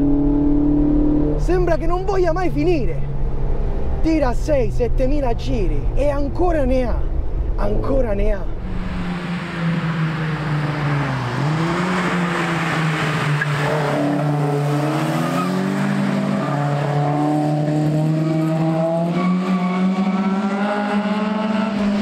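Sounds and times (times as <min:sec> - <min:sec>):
car engine revving past: 0:08.6 - 0:22.0.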